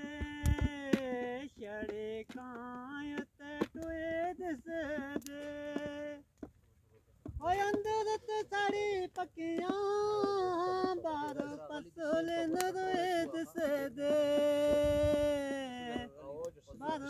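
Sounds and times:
person singing wordless melody: 0.0 - 6.4, 7.3 - 17.0
hand slaps on plastic pot: 0.2 - 1.1.

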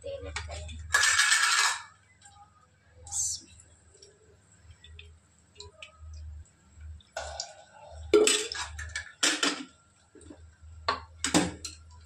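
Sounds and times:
metal utensils and pots clattering: 0.3 - 2.0, 7.2 - 10.4.

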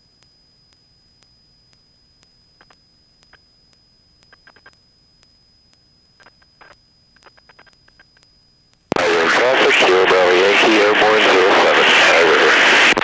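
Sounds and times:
faint electrical hiss: 0.0 - 9.0
steady high whine: 0.0 - 13.0
small crackling clicks: 0.2 - 9.0
loud cabin noise: 8.9 - 13.0.

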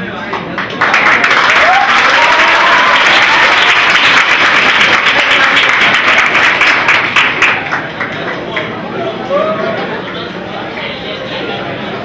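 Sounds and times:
audience applauding: 0.5 - 8.7.

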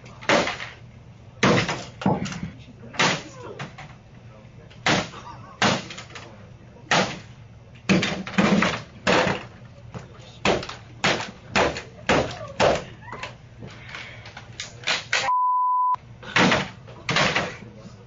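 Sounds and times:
laptop being smashed: 0.2 - 0.8, 4.8 - 6.3, 7.9 - 9.5, 16.3 - 17.6.

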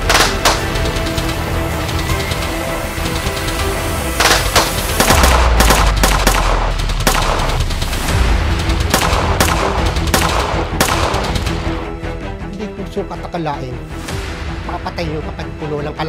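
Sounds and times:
rifle and submachine gun fire: 0.0 - 0.8, 4.2 - 7.7, 8.8 - 11.6
dramatic score music: 0.0 - 16.0.

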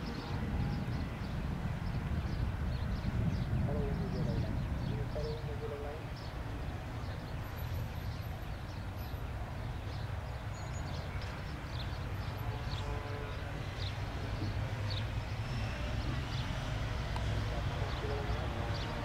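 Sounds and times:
distant turboprop engines droning: 0.0 - 19.0.

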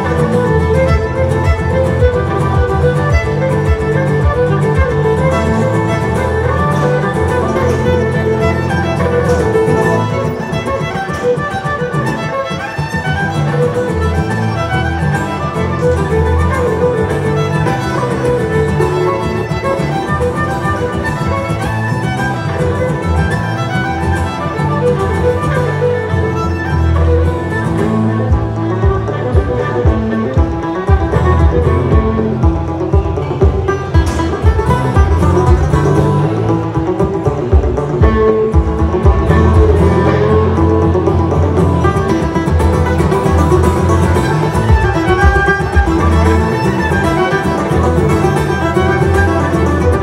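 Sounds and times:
fiddle music: 0.0 - 50.0
low bass line: 26.8 - 50.0.

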